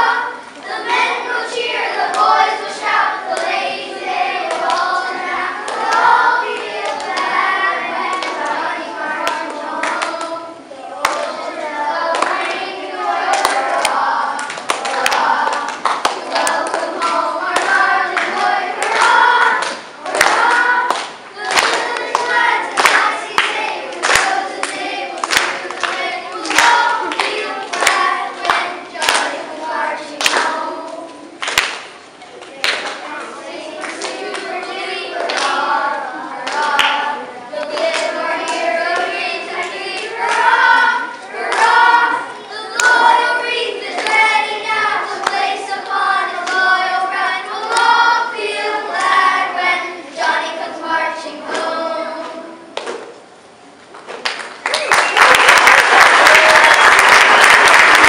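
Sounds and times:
group of people singing: 0:00.0 - 0:31.5, 0:32.5 - 0:53.2
hand claps: 0:11.0 - 0:11.4, 0:13.3 - 0:29.4, 0:31.4 - 0:31.9, 0:36.4 - 0:37.0, 0:42.7 - 0:43.1, 0:54.0 - 0:58.0.

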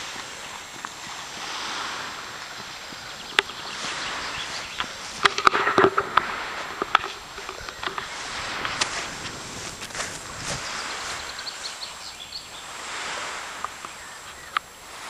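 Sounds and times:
running footsteps: 0:00.0 - 0:11.8
wind rushing over microphone: 0:00.0 - 0:15.0.

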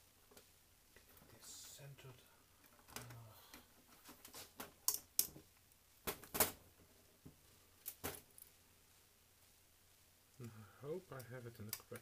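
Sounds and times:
clicks and knocks of metal model parts: 0:04.6 - 0:05.4.

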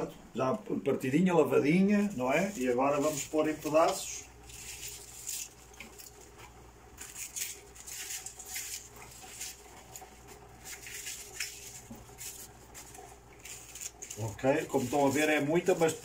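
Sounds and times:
cabbage leaves tearing: 0:01.8 - 0:16.0.

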